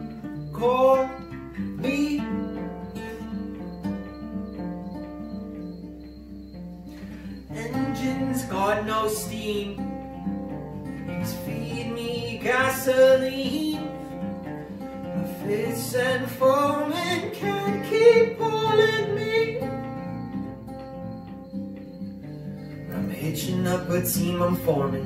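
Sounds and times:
acoustic guitar picking and strumming: 0.0 - 25.0
person singing wordless notes: 0.5 - 3.2, 7.5 - 9.9, 11.1 - 14.0, 15.2 - 19.7.

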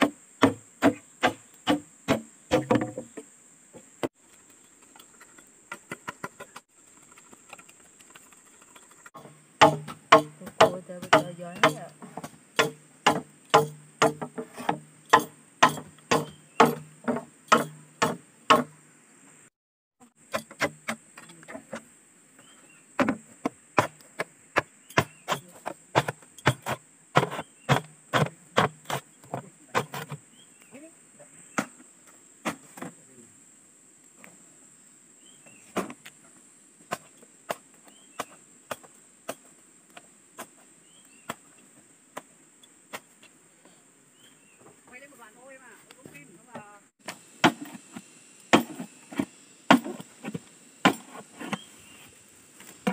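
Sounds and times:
machete chopping bamboo: 0.0 - 3.1, 9.2 - 18.8, 20.3 - 21.0, 23.8 - 29.0, 47.0 - 47.8, 48.5 - 51.6
insects buzzing: 0.0 - 52.9.

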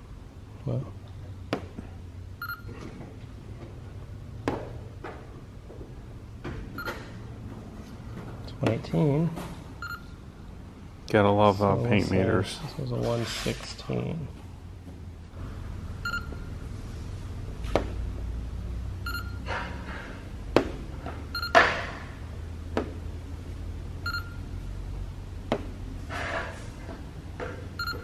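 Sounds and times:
low steady hum: 0.0 - 28.0
gauge beeping: 2.4 - 2.8, 6.7 - 7.2, 9.8 - 10.2, 16.0 - 16.7, 19.0 - 19.5, 21.3 - 21.6, 24.0 - 24.6, 27.7 - 28.0.

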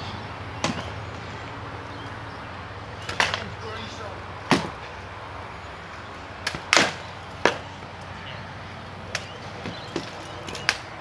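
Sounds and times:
swords striking shields and armour: 4.5 - 4.7.

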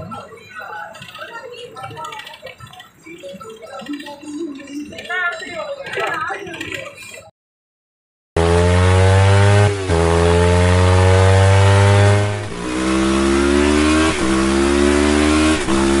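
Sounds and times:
motorcycle engine accelerating: 8.4 - 16.0.

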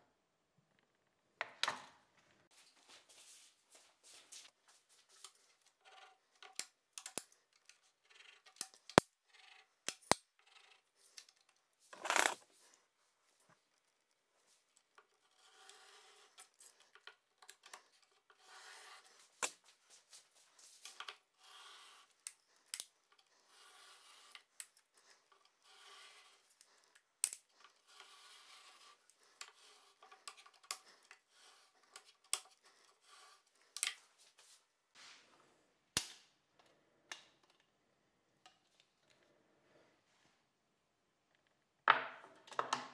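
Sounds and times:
pencil scratching on plywood: 15.1 - 16.9, 17.6 - 19.5, 20.9 - 22.4, 23.1 - 34.5.

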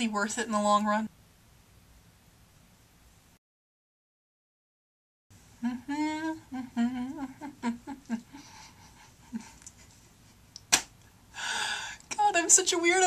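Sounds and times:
woman humming: 5.6 - 9.6.

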